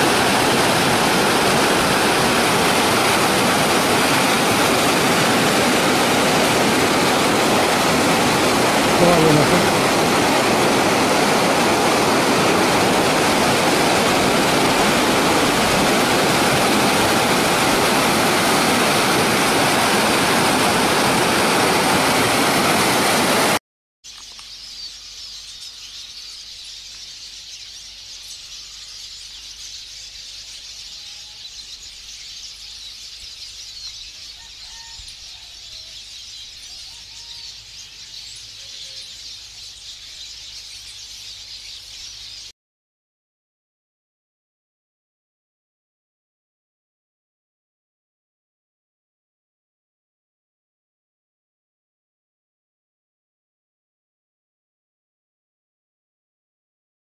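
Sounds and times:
faint bird chirps: 24.1 - 42.5.

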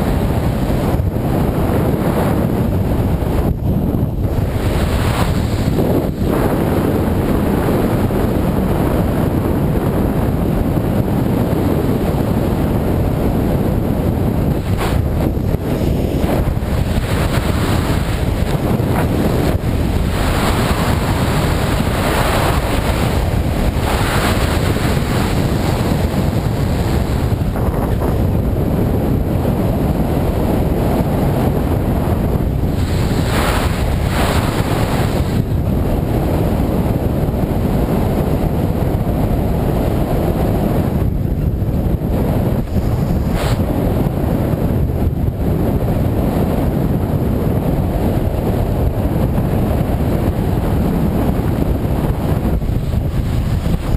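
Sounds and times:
wind buffeting microphone: 0.0 - 53.9.

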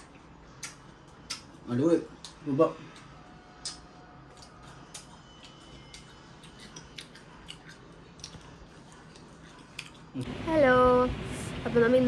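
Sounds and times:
low steady hum: 0.0 - 12.0
person chewing crunchy fruit: 3.5 - 10.3.

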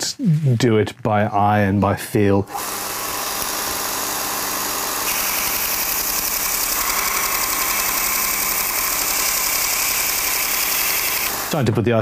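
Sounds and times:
belt sharpener running: 2.5 - 11.6
steel grinding on abrasive belt: 2.6 - 11.6.

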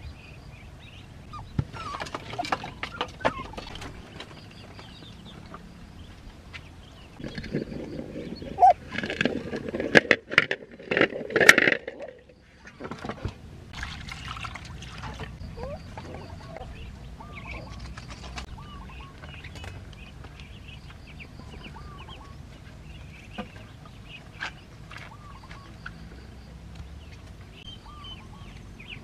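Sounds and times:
water splashing and pouring: 13.7 - 15.4.

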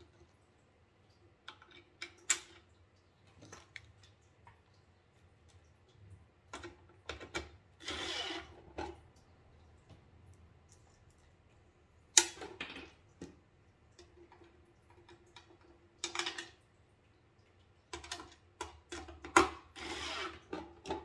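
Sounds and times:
cordless drill whirring: 7.8 - 8.5, 19.8 - 20.3.

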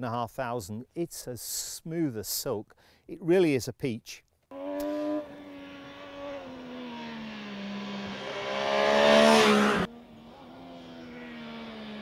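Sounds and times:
motorcycle passing at speed: 4.5 - 12.0
steady engine note: 4.5 - 12.0.

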